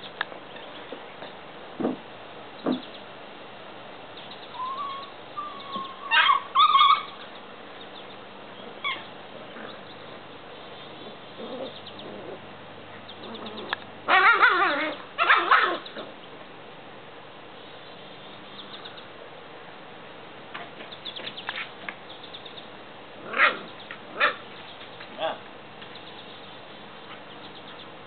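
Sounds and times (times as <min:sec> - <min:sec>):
puppies yipping and squealing: 0:04.5 - 0:07.4, 0:08.8 - 0:10.1, 0:13.0 - 0:16.2, 0:23.3 - 0:24.6.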